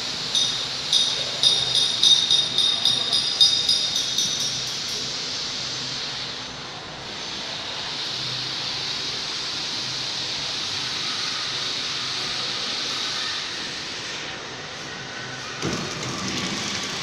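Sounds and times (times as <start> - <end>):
packing machine whirring: 15.0 - 17.0.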